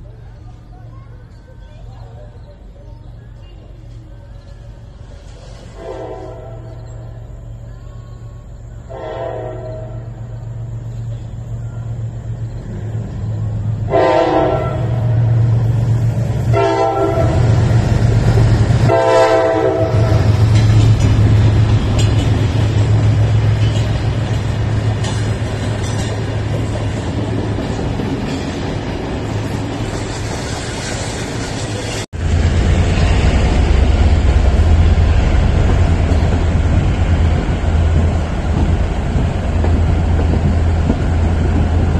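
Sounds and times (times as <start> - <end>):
rumble aboard a moving train: 0.0 - 41.9
train rumble: 0.0 - 41.9
train horn blasts: 5.6 - 6.9, 8.9 - 10.4, 13.8 - 15.4, 16.5 - 17.8, 18.8 - 20.6.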